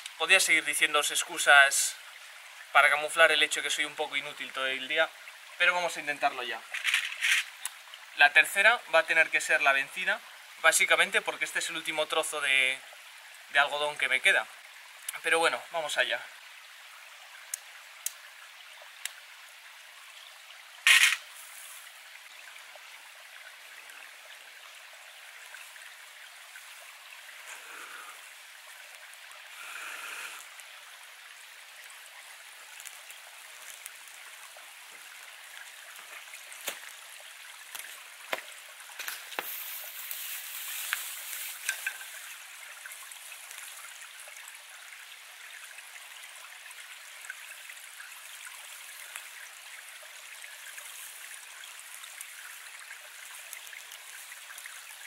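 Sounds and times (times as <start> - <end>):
creek trickling: 0.0 - 55.0
sharp crack: 20.8 - 21.3
tinder catching flame: 20.9 - 21.3.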